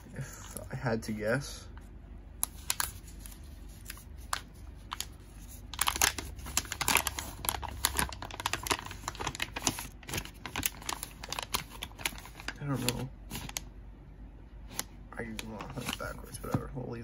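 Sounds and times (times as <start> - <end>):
plastic wrapping crinkling and tearing: 2.4 - 13.6.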